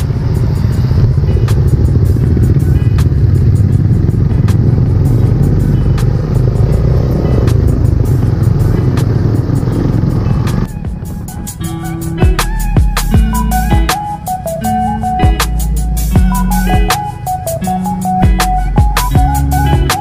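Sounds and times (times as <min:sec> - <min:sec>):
wind rumble on microphone: 0:00.0 - 0:11.6
motorcycle engine: 0:00.0 - 0:20.0
music playing: 0:00.0 - 0:20.0.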